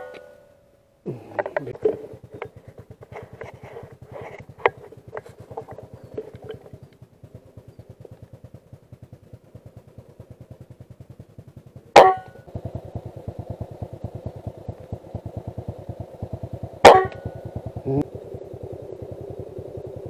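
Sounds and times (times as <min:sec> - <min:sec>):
fast low pulsing: 0:00.0 - 0:20.0
rifle shot with ringing: 0:11.9 - 0:12.5, 0:16.8 - 0:17.5.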